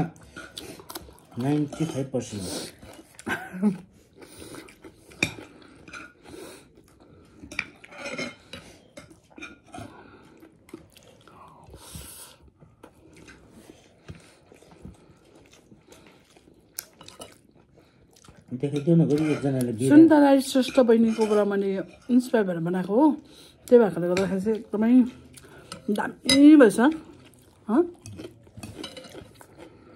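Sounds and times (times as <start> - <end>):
person chewing: 0.1 - 20.0, 25.2 - 25.9, 26.9 - 29.9.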